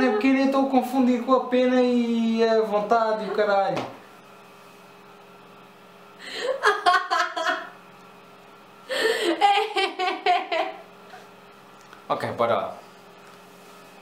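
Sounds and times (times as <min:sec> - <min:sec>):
woman laughing: 0:00.0 - 0:00.6, 0:06.2 - 0:07.8, 0:08.9 - 0:11.3.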